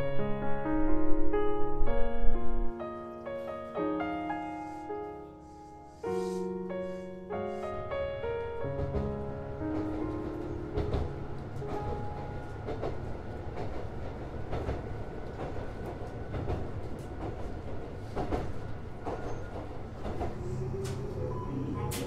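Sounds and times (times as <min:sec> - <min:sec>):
electric train rumbling: 0:06.1 - 0:22.0.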